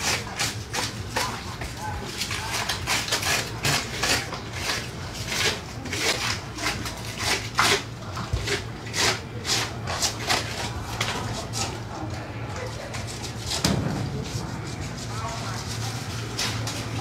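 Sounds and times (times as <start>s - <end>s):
knife scraping scaled fish skin: 0.0s - 11.8s.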